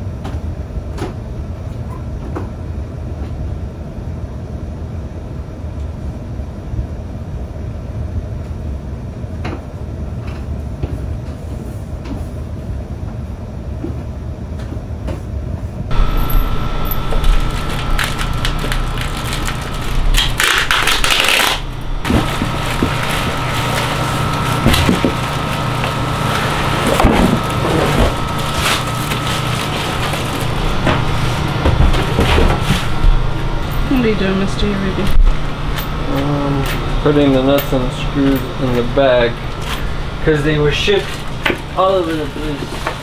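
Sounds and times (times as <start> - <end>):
steady hum: 0.0 - 43.0
cardboard and plastic packing rustling: 15.9 - 36.2, 37.9 - 43.0.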